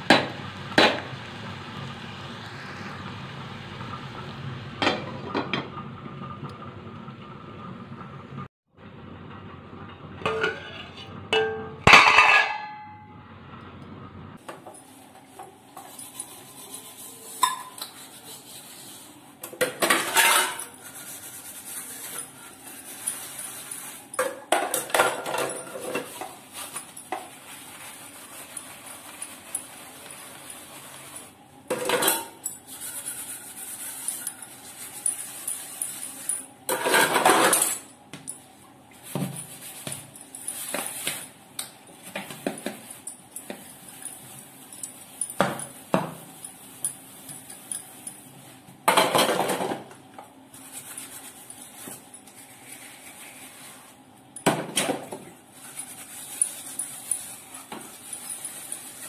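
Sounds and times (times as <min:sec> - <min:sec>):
dishes clattering and scrubbed: 0:04.8 - 0:06.8, 0:09.8 - 0:13.0, 0:14.4 - 0:38.4, 0:42.0 - 0:50.0
steel plates clinking: 0:10.2 - 0:13.0.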